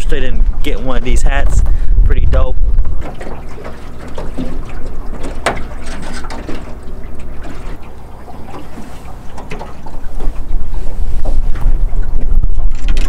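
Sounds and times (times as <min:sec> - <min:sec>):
waves lapping against boat hull: 0:00.0 - 0:13.0.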